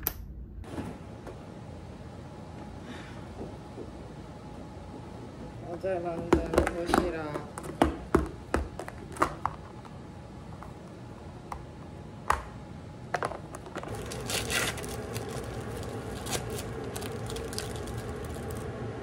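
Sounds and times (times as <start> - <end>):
steady low hum: 0.0 - 19.0
plastic wrapper crinkling: 13.8 - 18.7.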